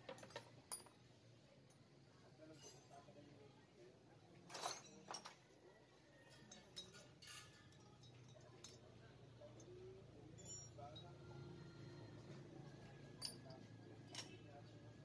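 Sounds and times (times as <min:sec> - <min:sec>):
metal parts and tools clinking: 0:00.0 - 0:01.0, 0:02.5 - 0:03.0, 0:04.5 - 0:05.4, 0:06.3 - 0:08.9, 0:10.3 - 0:11.2, 0:13.1 - 0:14.6.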